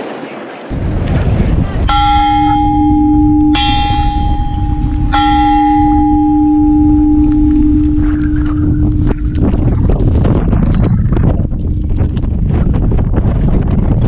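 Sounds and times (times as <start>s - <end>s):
steel bell clanging: 1.8s - 10.6s.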